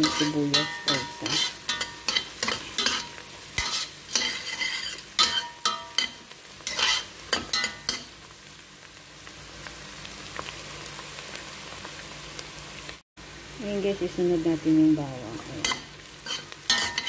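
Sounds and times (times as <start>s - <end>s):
metal spoon scraping a pot: 0.0s - 8.1s, 15.6s - 17.0s
onions sizzling in oil: 0.0s - 17.0s.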